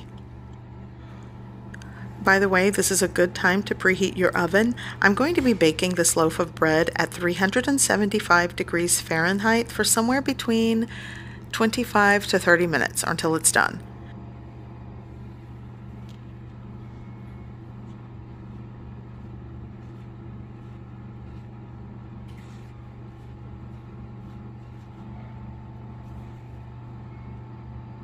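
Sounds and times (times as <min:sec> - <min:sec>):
low machine hum: 0:00.0 - 0:28.0.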